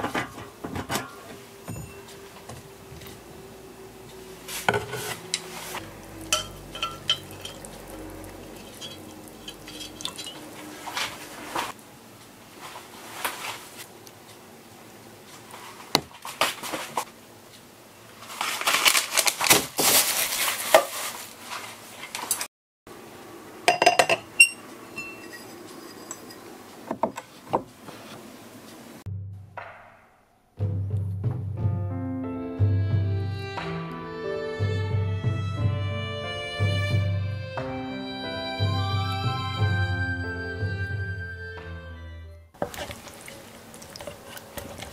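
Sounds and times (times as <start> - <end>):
metal chopsticks clinking on bowl: 6.2 - 10.5.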